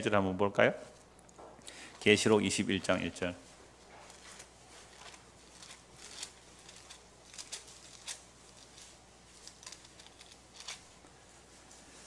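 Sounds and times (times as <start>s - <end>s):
low electrical hum: 0.0s - 12.0s
pages rustling: 3.5s - 12.0s.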